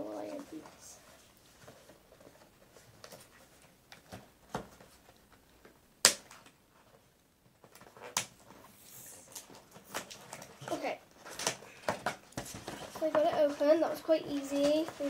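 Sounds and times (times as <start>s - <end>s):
cardboard and tape snapping: 6.0s - 6.6s, 11.2s - 13.0s.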